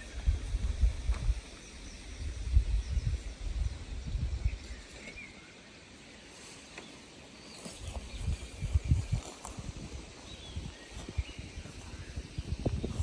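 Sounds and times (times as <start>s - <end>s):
wind buffeting microphone: 0.0s - 4.9s, 7.7s - 13.0s.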